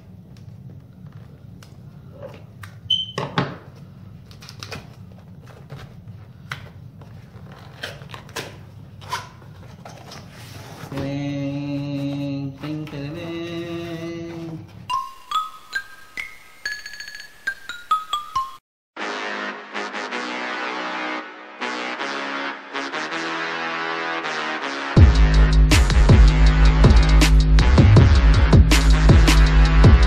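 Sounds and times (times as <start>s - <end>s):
person humming a tone: 10.9s - 14.7s
mallet percussion jingle: 14.9s - 18.6s.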